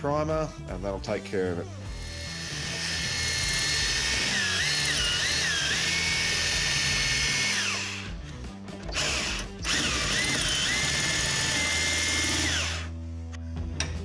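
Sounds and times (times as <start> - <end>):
power tool whining cutting steel: 1.9 - 8.1, 8.9 - 12.9.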